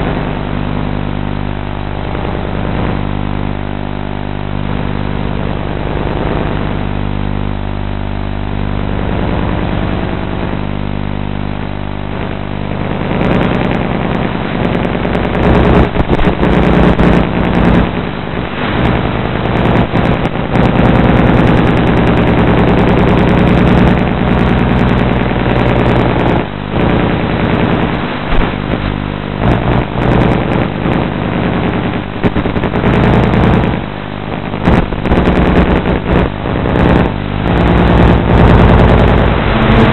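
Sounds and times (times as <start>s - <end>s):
small engine running: 36.8s - 39.9s.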